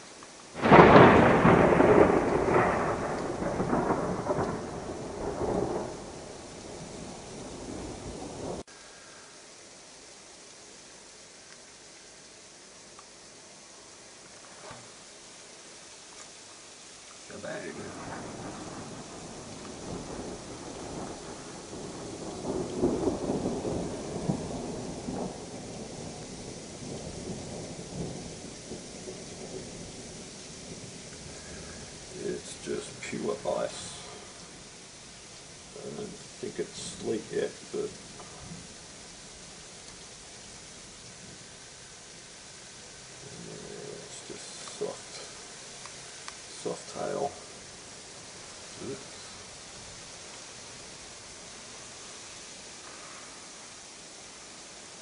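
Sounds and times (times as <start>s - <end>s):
hail falling: 0.0s - 10.8s, 16.1s - 55.0s
thunder rumbling: 0.6s - 8.7s, 17.3s - 52.2s.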